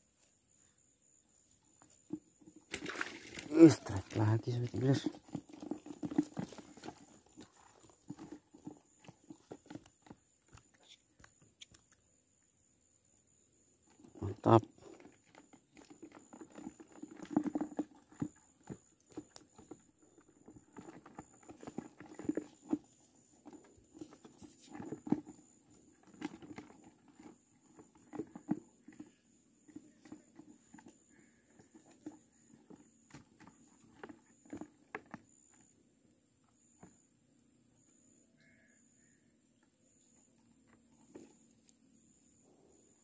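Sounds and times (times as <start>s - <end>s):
fishing rod handling knocks and rustles: 1.7s - 10.7s.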